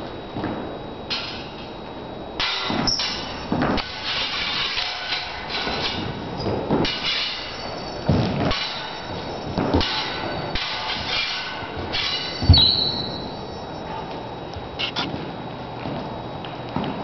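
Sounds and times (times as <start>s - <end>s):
sword blades clashing: 2.4s - 6.2s, 6.8s - 13.3s.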